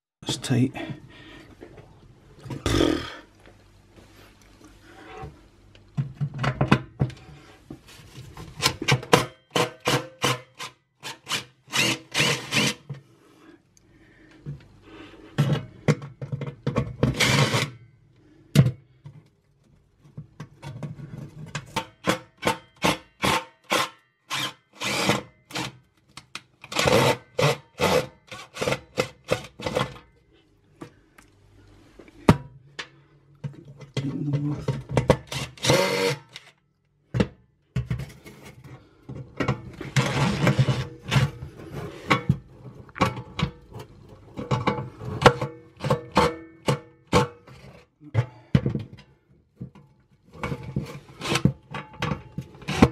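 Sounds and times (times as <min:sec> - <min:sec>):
cordless impact driver: 0:10.2 - 0:12.8, 0:23.8 - 0:25.7, 0:35.3 - 0:36.5.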